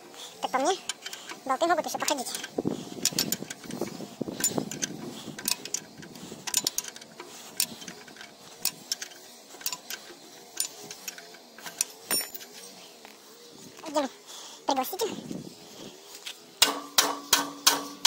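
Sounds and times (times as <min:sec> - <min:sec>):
spanner clicking on bolt: 0:00.8 - 0:12.6, 0:16.6 - 0:18.0.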